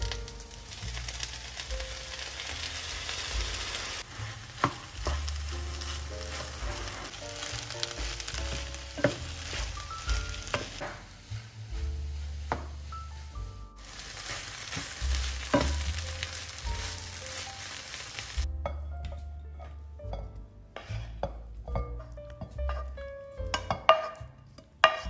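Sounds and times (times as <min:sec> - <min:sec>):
vegetables sizzling in a frying pan: 0:00.0 - 0:18.5
spatula knocking against pan: 0:21.2 - 0:24.2.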